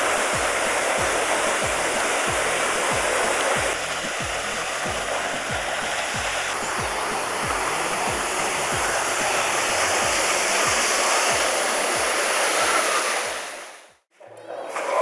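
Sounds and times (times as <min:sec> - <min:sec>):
flowing water rushing: 0:00.0 - 0:14.0.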